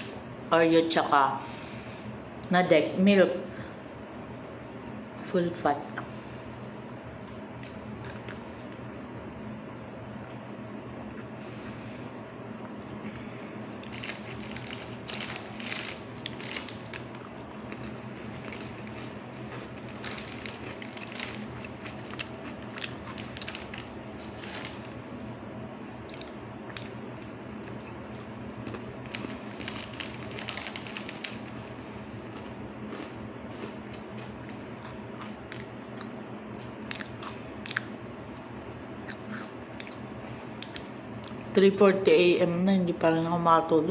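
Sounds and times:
cookies crunching: 0:13.7 - 0:25.3, 0:26.0 - 0:37.9.

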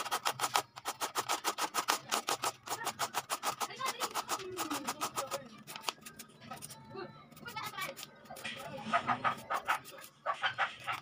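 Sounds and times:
carrot scraping on metal grater: 0:00.0 - 0:05.9.

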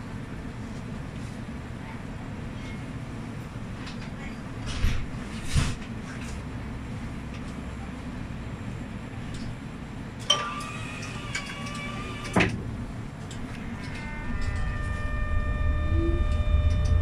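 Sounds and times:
tram humming: 0:05.8 - 0:17.0
doors shutting with a thud: 0:11.3 - 0:12.8
door warning tone: 0:13.5 - 0:17.0.

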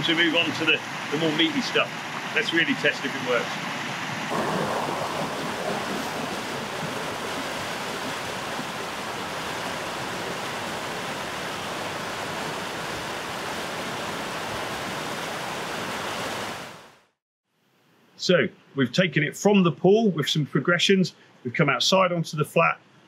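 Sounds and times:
river rapids rushing: 0:00.0 - 0:16.8.

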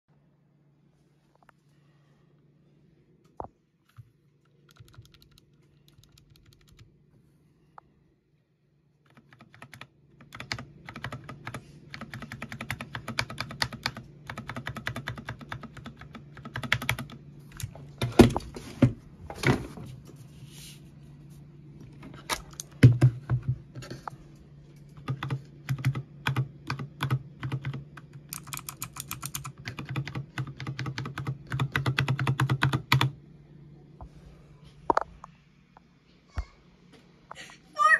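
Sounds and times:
low steady hum: 0:00.1 - 0:37.9
clicky keyboard typing: 0:03.9 - 0:06.9, 0:09.0 - 0:17.7, 0:24.8 - 0:33.1.

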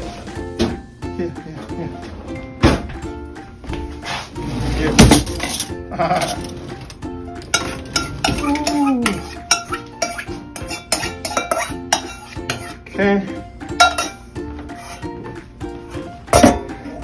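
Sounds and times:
background music: 0:00.0 - 0:17.0
spoon scraping ceramic bowl: 0:07.6 - 0:12.9, 0:13.8 - 0:15.1.

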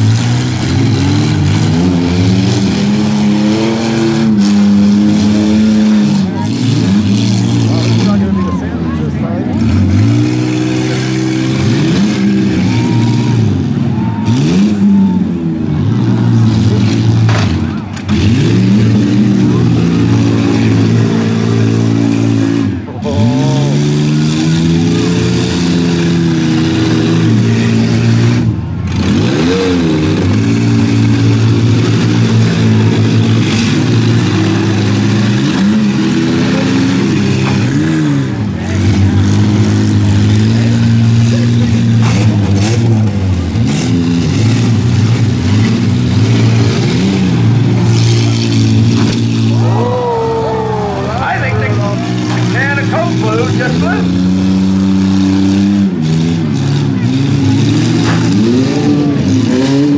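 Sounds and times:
engines revving hard: 0:00.0 - 0:59.9.

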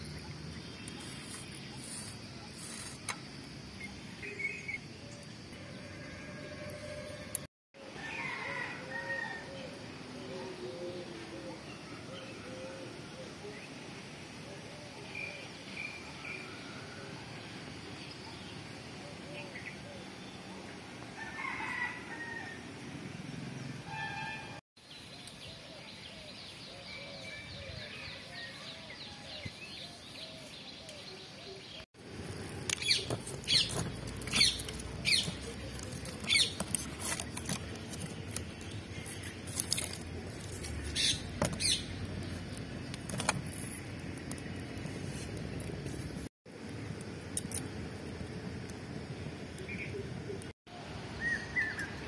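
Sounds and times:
firewood crackling and popping: 0:32.0 - 0:50.5.

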